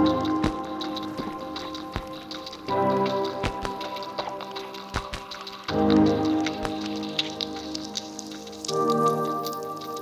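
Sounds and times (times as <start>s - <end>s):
light high ticks: 0.0s - 10.0s
synthesizer chords: 0.0s - 10.0s.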